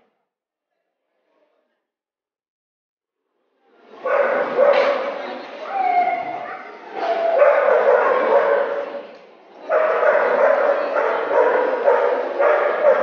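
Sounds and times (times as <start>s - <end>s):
people talking: 3.7s - 13.0s
dogs barking: 4.0s - 5.2s, 7.0s - 9.0s, 9.7s - 13.0s.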